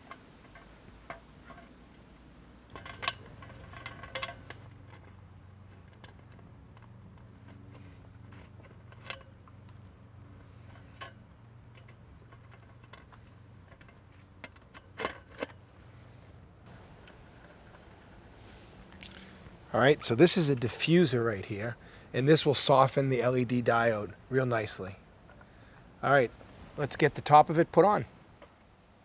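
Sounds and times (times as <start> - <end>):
low steady hum: 0.0 - 29.0
metal parts and tools clinking: 2.7 - 15.6.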